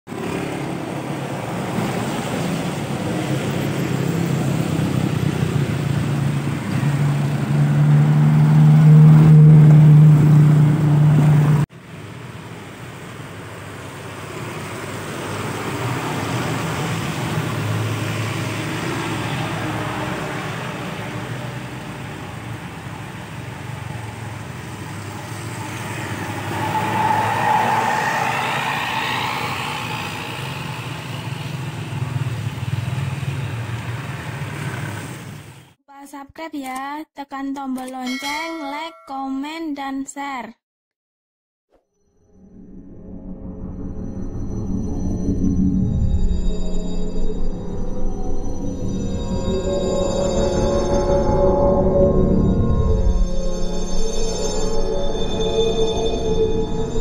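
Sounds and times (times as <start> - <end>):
heavy truck engines droning: 0.1 - 35.5
cars passing on wet road: 0.1 - 35.8.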